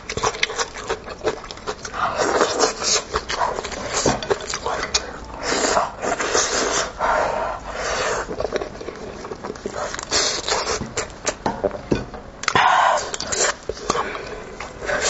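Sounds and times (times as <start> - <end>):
chewing sucking and slurping: 0.0 - 11.4, 12.5 - 15.0.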